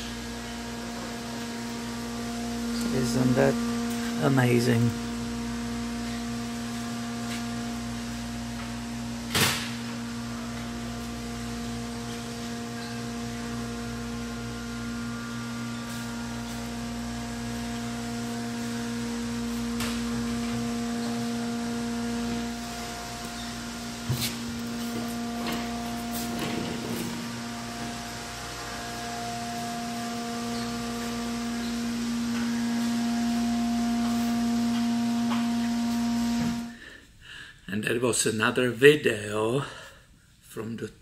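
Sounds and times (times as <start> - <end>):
electrical hum of equipment: 0.0 - 41.0.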